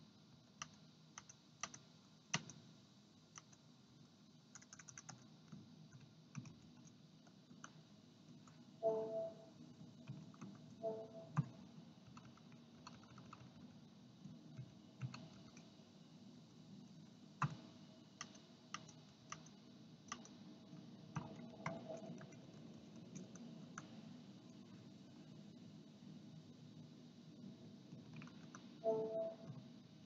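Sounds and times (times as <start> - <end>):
keyboard and mouse clicks: 0.6 - 2.6, 4.5 - 9.3, 10.0 - 13.7, 14.6 - 15.7, 18.2 - 20.4, 21.1 - 24.0.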